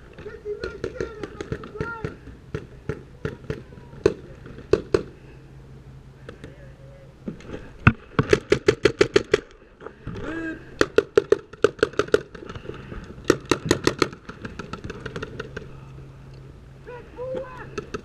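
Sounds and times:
paintball marker firing: 0:00.6 - 0:05.1, 0:08.2 - 0:09.5, 0:10.8 - 0:12.4, 0:13.2 - 0:15.7.

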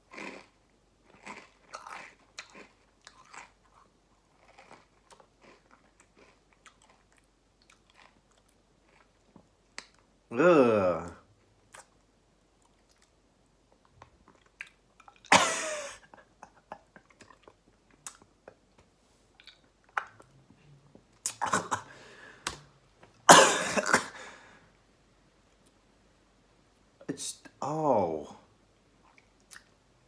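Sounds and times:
man crunching and chewing chips: 0:00.0 - 0:10.1, 0:12.6 - 0:16.1
man coughing: 0:15.3 - 0:16.2, 0:21.4 - 0:22.0, 0:23.3 - 0:24.4.

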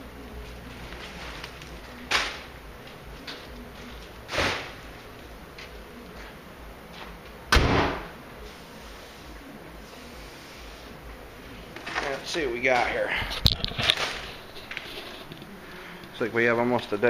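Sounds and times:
sudden thuds: 0:07.5 - 0:08.2.

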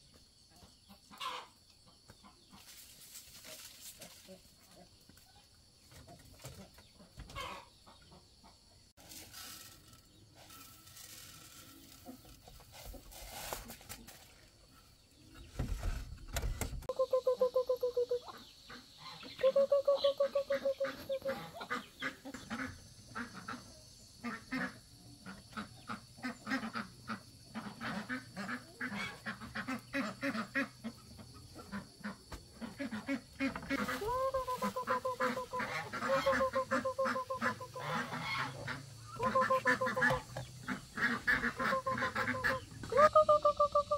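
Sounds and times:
chicken calling: 0:07.3 - 0:07.7, 0:16.9 - 0:23.6, 0:27.8 - 0:43.9.

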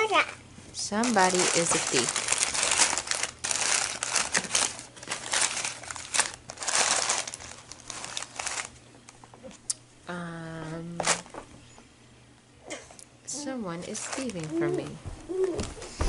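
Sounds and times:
crinkly packaging rustling: 0:00.8 - 0:09.1, 0:13.8 - 0:15.8.

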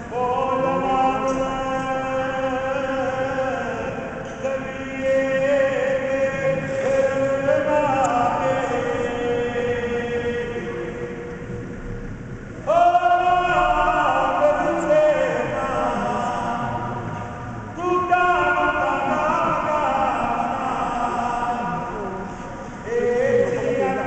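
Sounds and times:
devotional chant: 0:00.0 - 0:24.0.

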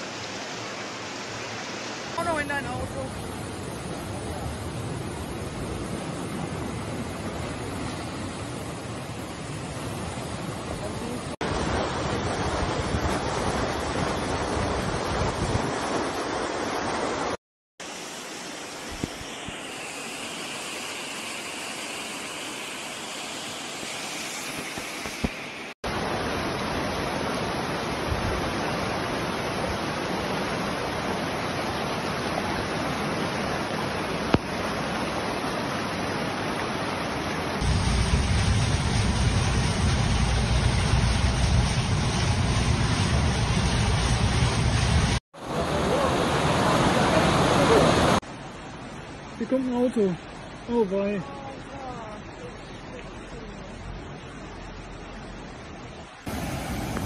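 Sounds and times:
floodwater rushing: 0:00.0 - 0:57.0
deep rumble: 0:37.6 - 0:45.2.

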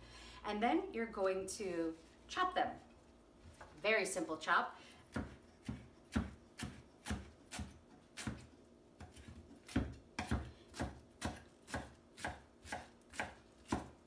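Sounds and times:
knife chopping on wooden board: 0:05.1 - 0:14.0.

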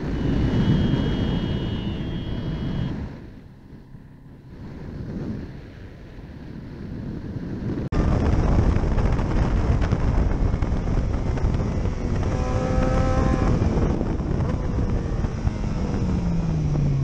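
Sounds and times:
wind buffeting: 0:00.0 - 0:17.0
motorcycle engine running: 0:08.0 - 0:17.0.

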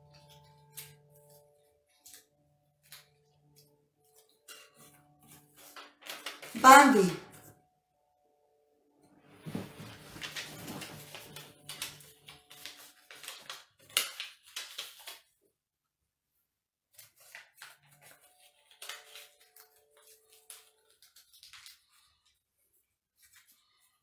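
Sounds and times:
paper crinkle: 0:00.1 - 0:07.5, 0:09.5 - 0:15.4, 0:16.9 - 0:24.0
paper slips rustling: 0:05.3 - 0:07.5, 0:09.6 - 0:15.3, 0:17.0 - 0:22.2.

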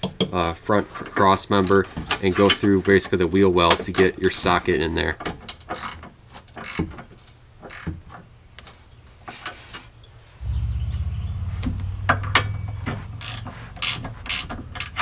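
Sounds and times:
steady low hum: 0:10.1 - 0:15.0.

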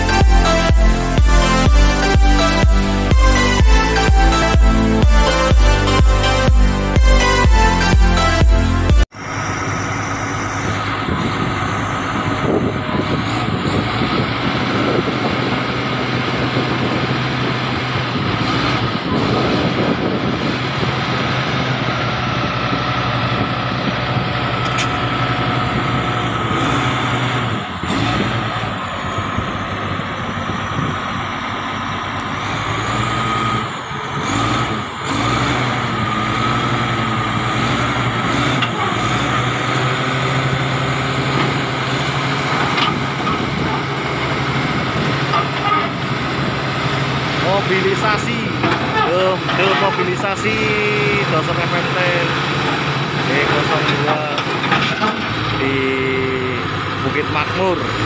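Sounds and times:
steady whine: 0:00.0 - 0:13.9
bulldozer diesel engine running: 0:00.0 - 0:58.0.

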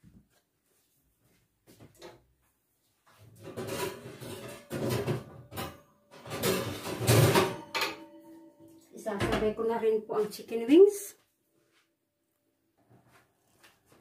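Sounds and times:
pans clattering: 0:03.4 - 0:08.6.

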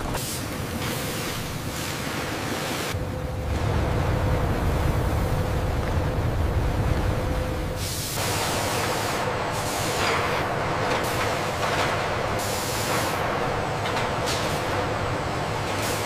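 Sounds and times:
machinery low rumble: 0:03.0 - 0:12.5
loud hiss: 0:07.8 - 0:11.6.

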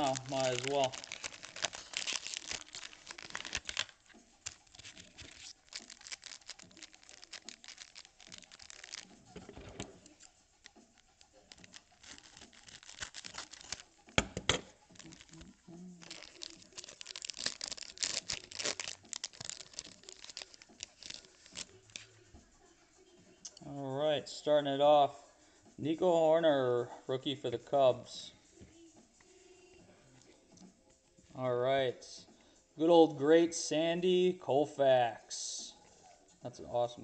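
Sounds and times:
foil wrapper crinkling and tearing: 0:00.0 - 0:22.0
cards and plastic crackling: 0:00.0 - 0:22.2.

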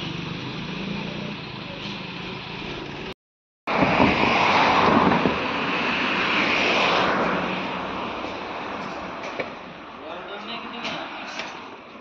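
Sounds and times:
loud rushing noise: 0:03.7 - 0:09.2.

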